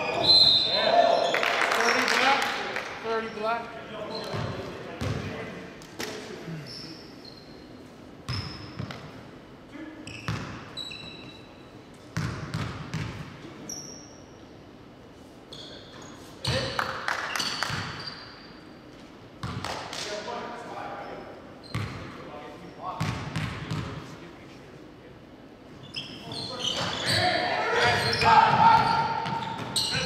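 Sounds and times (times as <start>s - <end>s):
shoe squeaks: 0.0s - 1.4s, 4.0s - 4.7s, 6.6s - 9.0s, 10.0s - 11.7s, 13.6s - 14.4s, 15.5s - 16.7s, 17.3s - 18.7s, 21.0s - 22.0s, 25.8s - 30.0s
basketball bouncing: 4.3s - 5.2s, 12.2s - 13.3s, 23.0s - 23.9s.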